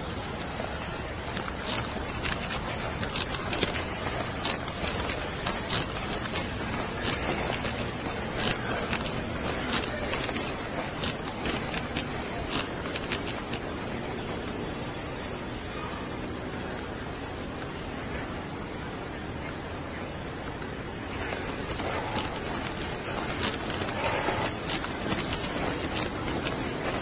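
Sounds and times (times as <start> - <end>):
outdoor background hiss: 0.0 - 27.0
footsteps: 0.3 - 14.2, 21.1 - 27.0
clothing scraping on body camera: 0.4 - 14.5, 21.1 - 27.0.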